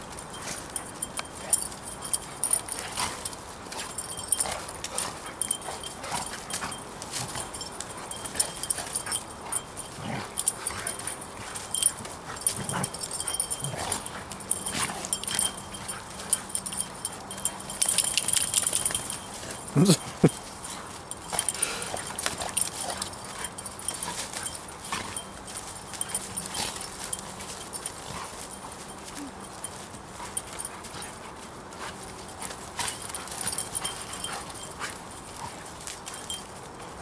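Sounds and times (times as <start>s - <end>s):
dogs scuffling in dry leaves: 0.0s - 37.0s
dog whining: 19.7s - 20.4s.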